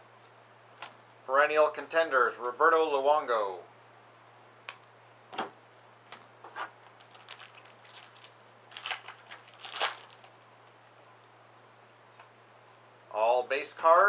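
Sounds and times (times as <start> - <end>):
wrapper crinkling and tearing: 6.9 - 10.4.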